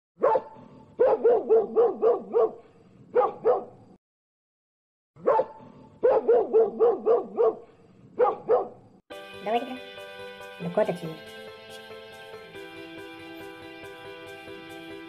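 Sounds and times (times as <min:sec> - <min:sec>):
dog barking: 0:00.2 - 0:03.8, 0:05.2 - 0:08.9.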